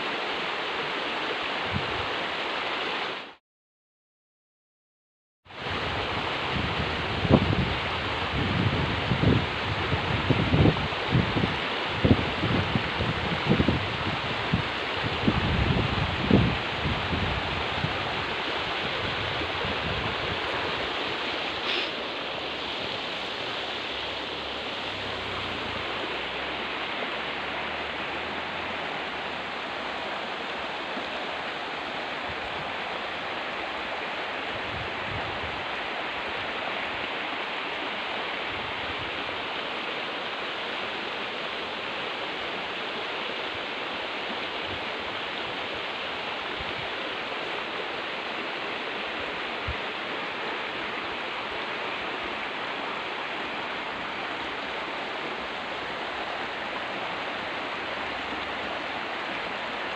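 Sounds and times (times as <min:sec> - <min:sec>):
river rushing over rocks: 0:00.0 - 0:03.4, 0:05.6 - 0:59.9.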